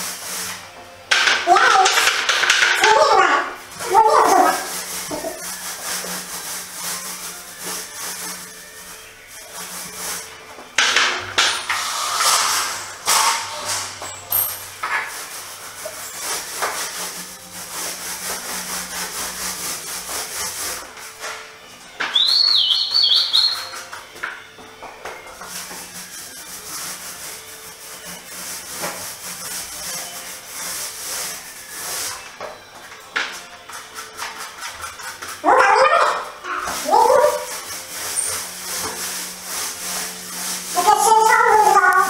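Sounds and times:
paint roller sticky hiss: 0:00.0 - 0:13.9, 0:14.8 - 0:21.4, 0:25.3 - 0:32.4, 0:36.1 - 0:42.0.

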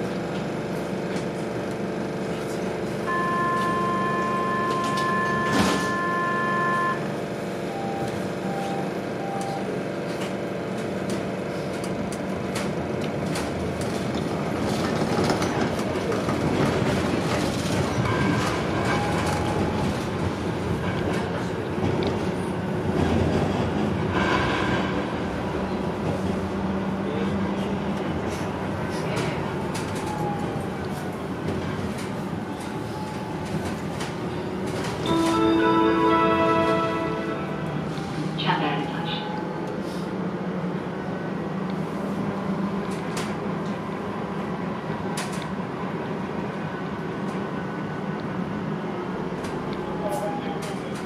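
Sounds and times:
tram wheels and motors rumbling: 0:00.0 - 0:51.0
short beeps: 0:03.1 - 0:07.1
held two-note tone: 0:35.0 - 0:38.1.

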